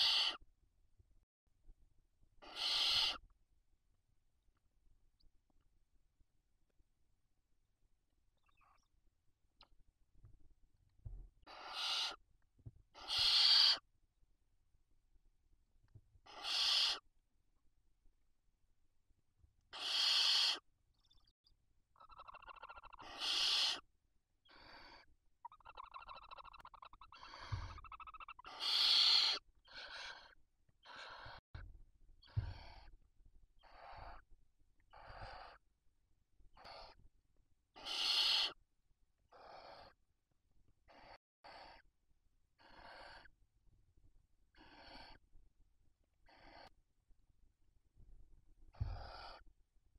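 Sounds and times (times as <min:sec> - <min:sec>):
owl chittering calls: 0:00.0 - 0:00.4, 0:02.4 - 0:03.2, 0:11.4 - 0:12.2, 0:12.9 - 0:13.9, 0:16.2 - 0:17.1, 0:19.7 - 0:21.2, 0:22.0 - 0:31.4, 0:32.2 - 0:32.9, 0:33.6 - 0:34.3, 0:34.9 - 0:35.6, 0:36.6 - 0:37.0, 0:37.8 - 0:38.6, 0:39.3 - 0:40.0, 0:40.8 - 0:41.9, 0:42.6 - 0:43.3, 0:44.5 - 0:45.2, 0:46.2 - 0:46.8, 0:48.7 - 0:49.4
owls rasping hisses: 0:00.0 - 0:00.4, 0:02.4 - 0:03.2, 0:11.5 - 0:12.2, 0:13.0 - 0:13.9, 0:16.3 - 0:17.0, 0:19.7 - 0:20.6, 0:22.5 - 0:23.9, 0:24.5 - 0:31.4, 0:33.6 - 0:34.2, 0:34.9 - 0:35.6, 0:37.8 - 0:38.6, 0:39.3 - 0:40.0, 0:40.9 - 0:41.8, 0:42.6 - 0:43.3, 0:44.6 - 0:45.2, 0:46.3 - 0:46.8, 0:48.8 - 0:49.4.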